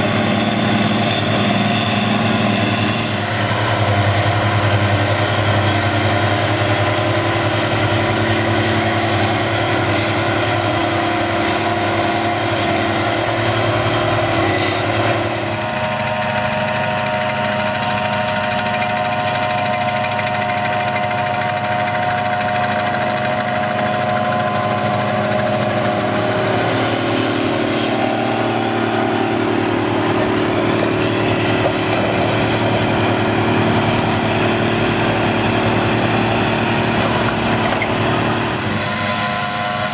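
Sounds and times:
diesel engines running: 0.0 - 39.9
steady whine: 21.7 - 39.9.

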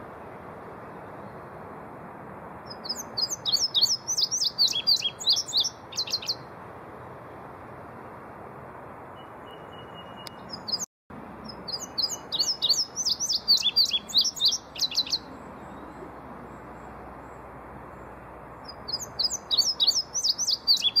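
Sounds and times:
bird singing: 2.7 - 6.5, 9.2 - 21.0.

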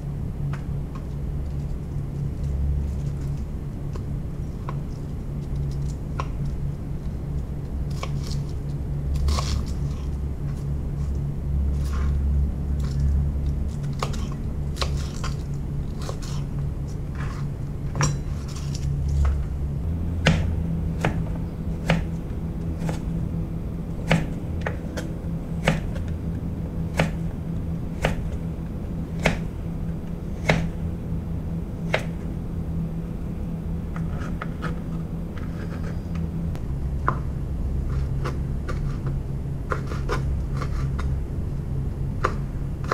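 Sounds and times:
low hum: 0.0 - 42.9
knife chopping on plastic board: 20.2 - 22.1, 24.0 - 26.1.

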